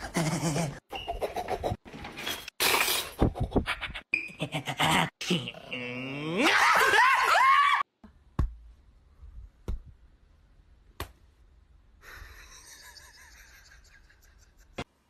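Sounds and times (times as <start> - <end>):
high wavering vocal cry: 4.4 - 7.8.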